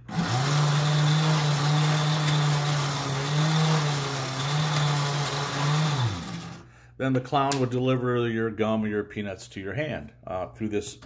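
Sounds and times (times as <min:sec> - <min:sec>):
electric motor humming: 0:00.0 - 0:06.6.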